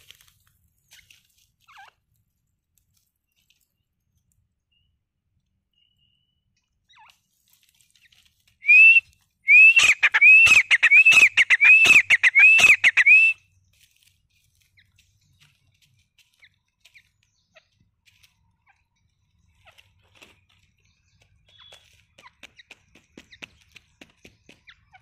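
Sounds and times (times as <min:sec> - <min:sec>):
francolin calling: 0:08.6 - 0:13.5.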